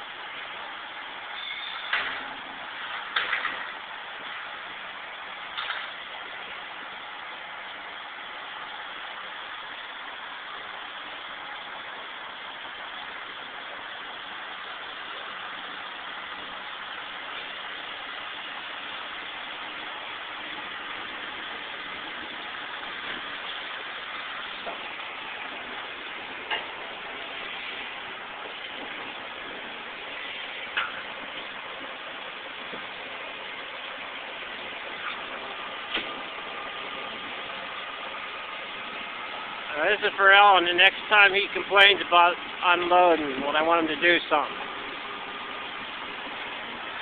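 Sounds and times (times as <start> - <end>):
truck engine running: 2.0 - 47.0.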